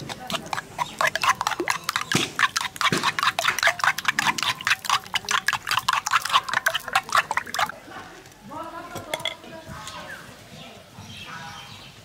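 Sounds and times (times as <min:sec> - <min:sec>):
spoon beating eggs in bowl: 0:00.0 - 0:07.8
eggs sloshing: 0:00.0 - 0:07.9.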